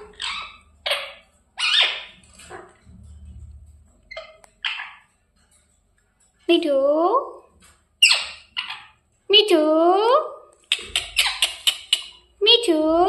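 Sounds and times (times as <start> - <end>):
parrot squawking: 0.0 - 2.7, 4.1 - 5.1, 8.0 - 9.0, 10.7 - 12.3.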